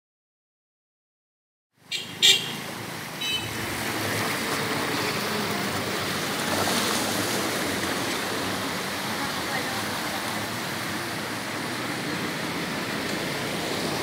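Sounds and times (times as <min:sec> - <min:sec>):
rushing water: 0:01.8 - 0:14.0
traffic: 0:01.8 - 0:14.0
vehicle horn toots: 0:01.9 - 0:02.6, 0:03.2 - 0:03.6.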